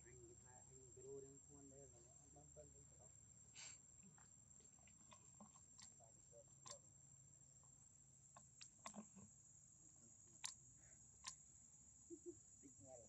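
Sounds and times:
faint high-pitched hum: 0.0 - 13.0
faint clicks: 4.0 - 6.9, 7.6 - 9.4, 10.4 - 11.4.

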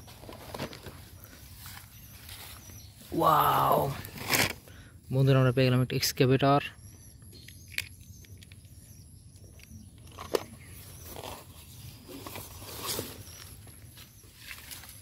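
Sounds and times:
rustling through grass: 0.0 - 3.2, 11.0 - 15.0.

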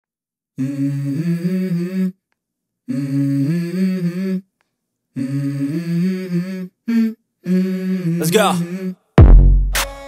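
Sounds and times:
person humming a melody: 0.6 - 2.2, 2.9 - 4.5, 5.2 - 9.1.

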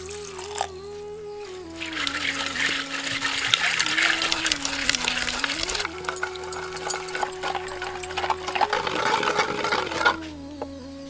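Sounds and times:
held tone shifting pitch: 1.5 - 10.2
fruits rattling in clay pot: 1.7 - 10.3.

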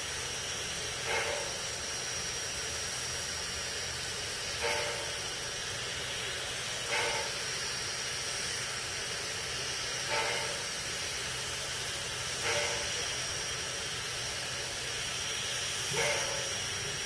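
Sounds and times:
steam hissing from locomotive: 0.0 - 17.0
steam puffs: 0.0 - 17.0.

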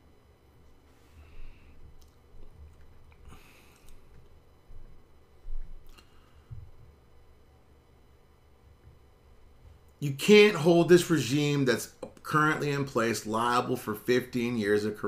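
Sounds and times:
faint breaths and mouth noises: 0.9 - 5.0.

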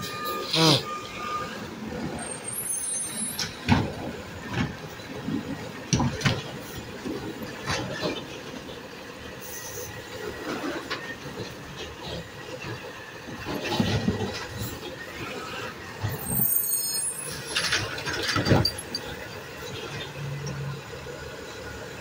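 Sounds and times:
metal arm and cart clanking: 10.4 - 20.6.

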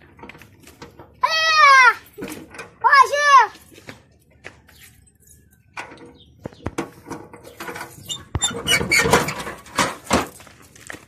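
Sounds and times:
metal door rattling and scraping: 0.0 - 3.3, 5.7 - 10.8
door squeaking: 7.8 - 9.9.

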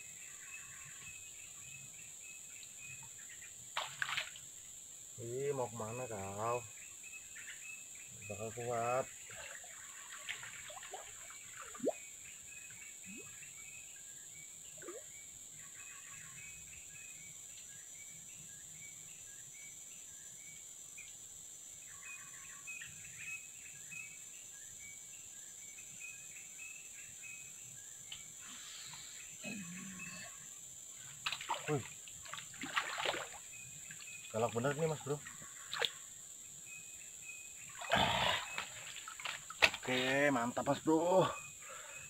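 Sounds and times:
insect drone: 0.0 - 42.0
birds chirping: 26.1 - 42.0.

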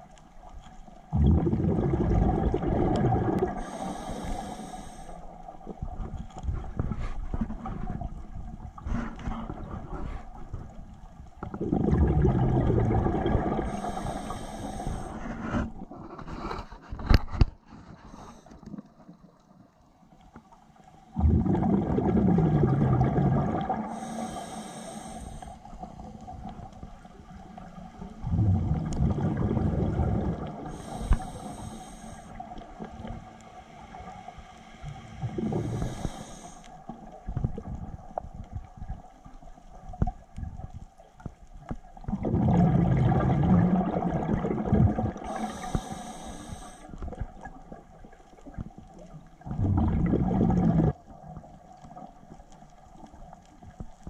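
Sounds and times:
diver exhaling bubbles: 1.1 - 4.3, 11.4 - 16.5, 21.1 - 26.1, 28.0 - 31.6, 34.9 - 36.5, 42.0 - 48.2, 49.4 - 51.1
regulator inhalation hiss: 3.6 - 5.4, 13.7 - 15.2, 23.9 - 25.8, 30.7 - 32.6, 33.6 - 36.8, 45.3 - 47.0.

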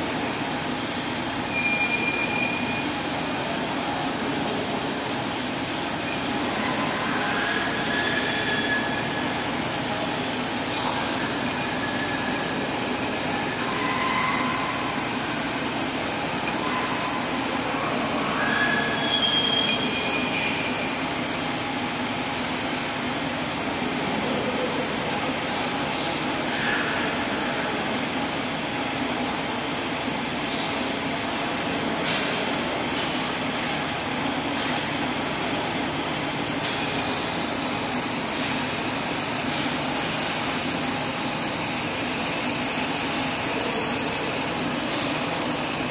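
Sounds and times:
short high squeaks: 1.5 - 2.9, 18.5 - 20.7.

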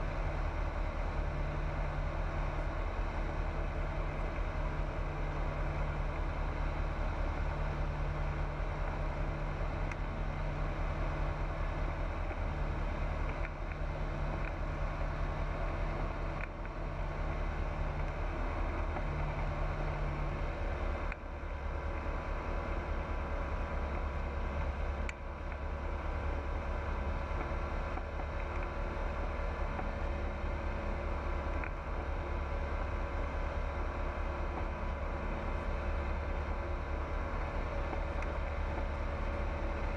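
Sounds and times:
light aircraft engine droning: 0.0 - 39.9.

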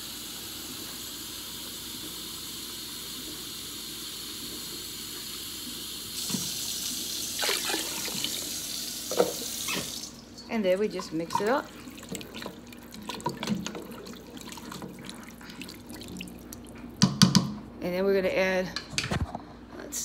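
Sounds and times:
running water rushing: 6.2 - 16.7
water pouring into a pot: 6.2 - 16.8
water splashing: 7.3 - 8.6, 9.2 - 16.9.

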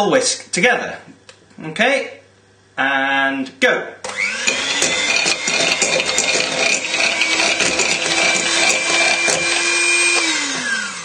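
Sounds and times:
electric hand whisk running: 4.1 - 11.0.

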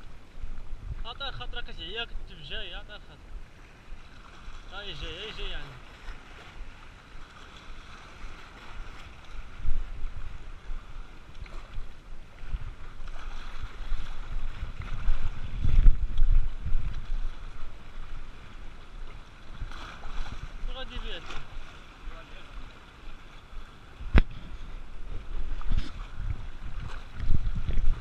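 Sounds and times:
wind buffeting microphone: 0.0 - 2.3, 8.7 - 21.6, 23.9 - 28.0
waves splashing over rocks: 0.0 - 28.0.

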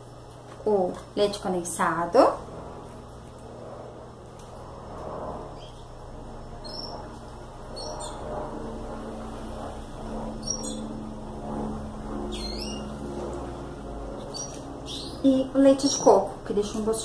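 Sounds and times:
low steady hum: 0.0 - 17.0
bird chirping: 5.6 - 5.9, 6.6 - 7.0, 7.7 - 8.3, 10.4 - 10.9, 12.3 - 13.0, 14.2 - 16.2.

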